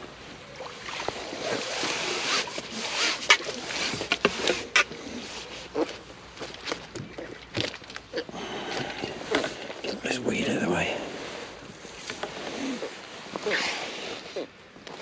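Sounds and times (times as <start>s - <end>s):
water splashing off a net: 0.5s - 4.7s.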